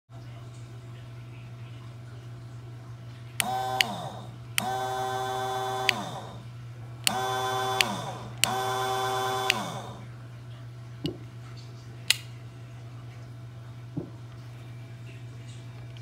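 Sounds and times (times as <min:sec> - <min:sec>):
rocker switch click: 0:03.4 - 0:04.9, 0:05.8 - 0:06.4, 0:07.0 - 0:09.9, 0:12.1 - 0:12.3
pump motor whining: 0:03.4 - 0:10.2.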